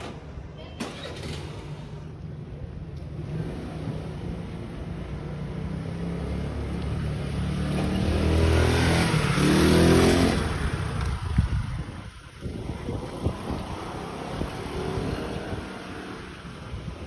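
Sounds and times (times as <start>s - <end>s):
vehicle engine passing: 3.2s - 11.5s.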